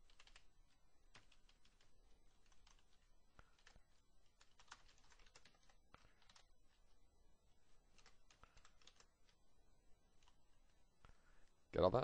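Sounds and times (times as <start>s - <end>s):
faint keyboard typing: 0.0s - 9.5s, 10.1s - 11.5s.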